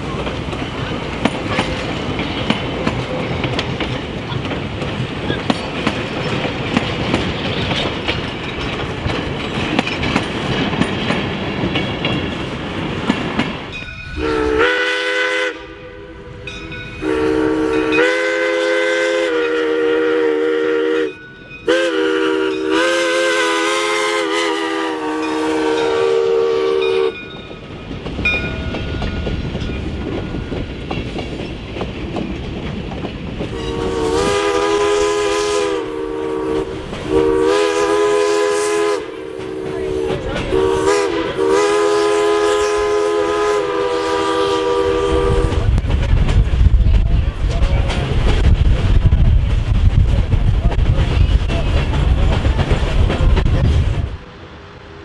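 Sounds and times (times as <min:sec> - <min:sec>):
rail clatter: 0:00.0 - 0:15.0, 0:25.1 - 0:55.0
train running rumble: 0:00.0 - 0:55.0
steam locomotive whistle blasts: 0:14.1 - 0:27.2, 0:33.5 - 0:45.7.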